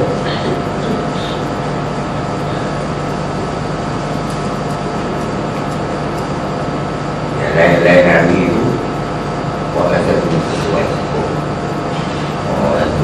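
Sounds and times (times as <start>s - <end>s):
room noise hum and hiss: 0.0s - 13.0s.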